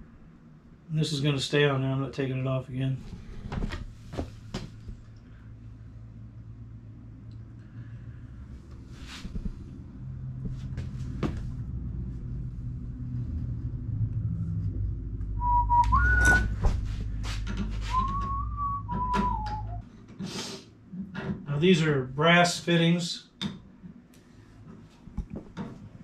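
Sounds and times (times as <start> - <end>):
low steady hum: 0.0 - 20.2
person whistling a tune: 15.4 - 16.6, 17.9 - 19.8.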